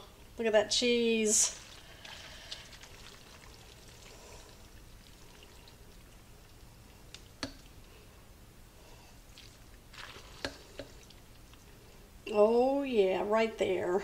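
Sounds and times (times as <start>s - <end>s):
wet sticky squishing of noodles: 1.5s - 8.1s, 9.0s - 12.1s.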